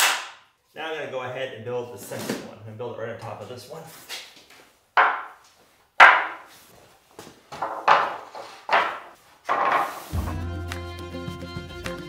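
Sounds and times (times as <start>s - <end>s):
wooden pickets knocking and clattering: 5.0s - 5.4s, 6.0s - 6.5s, 7.5s - 10.0s.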